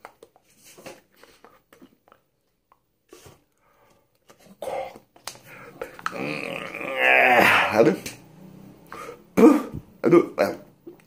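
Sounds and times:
man clearing throat: 0:07.3 - 0:07.9, 0:09.3 - 0:10.4.

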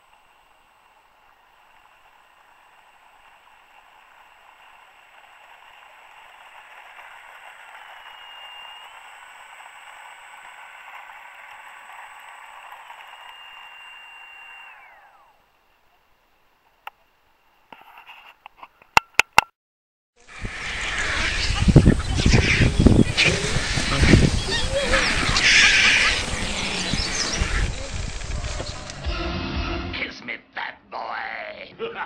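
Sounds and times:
model plane motor whine: 0:00.0 - 0:15.5, 0:20.2 - 0:29.0.

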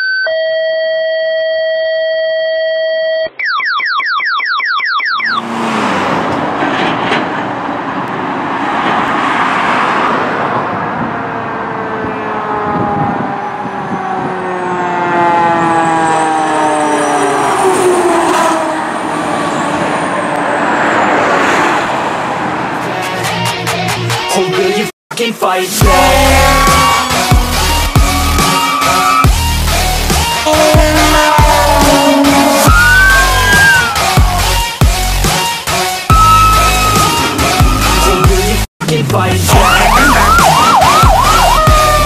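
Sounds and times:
fire engine and road noise: 0:05.0 - 0:42.0
fire engine siren wailing: 0:08.4 - 0:22.6, 0:25.8 - 0:34.7, 0:36.0 - 0:38.6, 0:39.5 - 0:42.0
steady electronic tone: 0:25.8 - 0:33.8, 0:36.1 - 0:38.6
rising electronic chirps: 0:31.3 - 0:34.0, 0:36.1 - 0:38.6.

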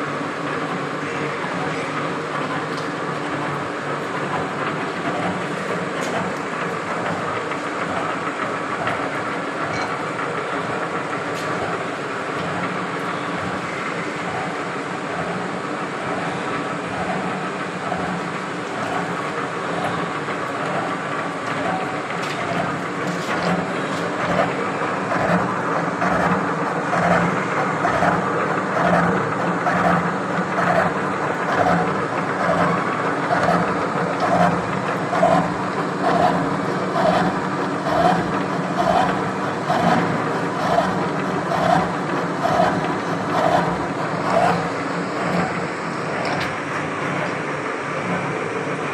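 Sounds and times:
milling machine hum: 0:00.0 - 0:48.9
gear cutter cutting pulse: 0:30.6 - 0:46.5.

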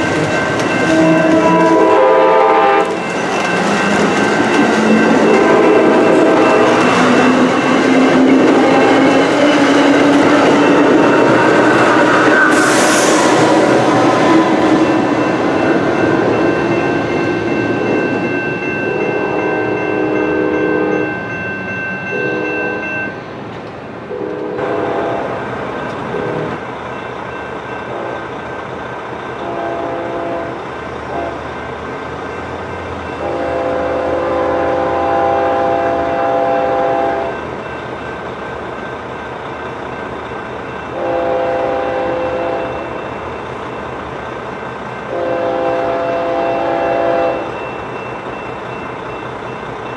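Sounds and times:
rumble of passing train: 0:00.0 - 0:49.9
locomotive horn chord blasts: 0:00.9 - 0:03.0, 0:22.1 - 0:22.8, 0:24.1 - 0:25.4, 0:29.4 - 0:31.4, 0:33.2 - 0:37.3, 0:41.0 - 0:42.8, 0:45.1 - 0:47.5.

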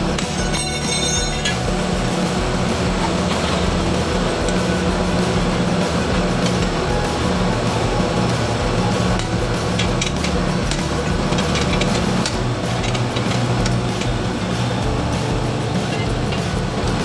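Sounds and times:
steady low hum: 0:00.0 - 0:17.0
sharp metal clinks of tools: 0:00.2 - 0:01.7.

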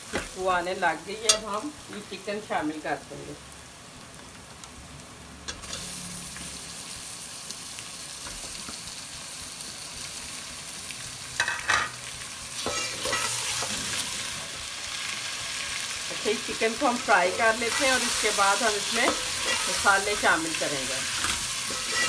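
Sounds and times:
chicken sizzling in hot oil: 0:00.0 - 0:22.0
spatula scraping metal pot: 0:12.6 - 0:14.0, 0:17.3 - 0:20.4, 0:21.0 - 0:22.0.

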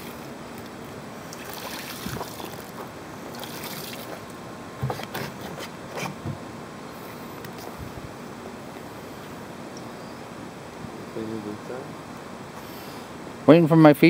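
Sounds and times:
outdoor background hiss: 0:00.0 - 0:14.0
light knocks and rustles: 0:04.8 - 0:06.4.

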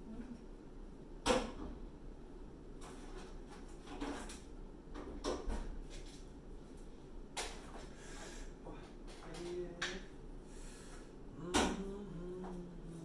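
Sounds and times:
scrapes and rustles: 0:02.8 - 0:04.5.

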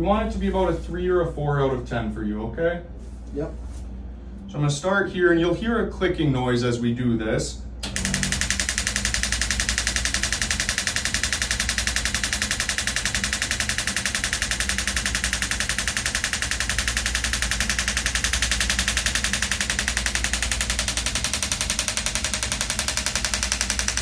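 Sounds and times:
rapid even clicking: 0:07.8 - 0:24.0.

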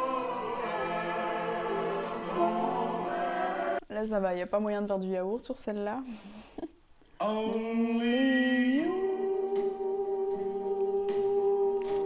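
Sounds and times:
person singing long note: 0:07.2 - 0:12.0.

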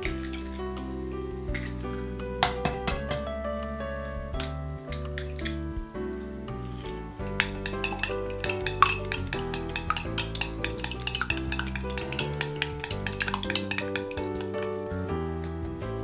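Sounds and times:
wet stirring: 0:00.0 - 0:15.6
background music: 0:00.0 - 0:16.0
chopsticks clicking against glass: 0:07.4 - 0:14.6.

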